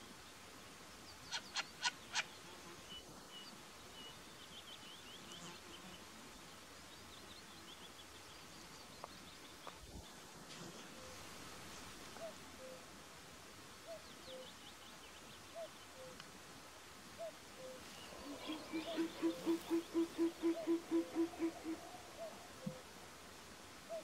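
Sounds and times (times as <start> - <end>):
owl calls: 17.2 - 22.9.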